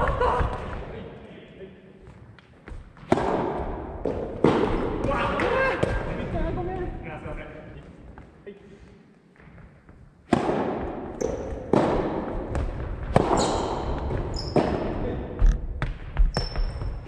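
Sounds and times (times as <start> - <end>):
tennis ball hit by racket: 3.0 - 6.0, 10.3 - 15.0
ball bouncing on wooden floor: 10.8 - 17.0
shoes squeaking on floor: 13.3 - 14.9, 16.2 - 17.0.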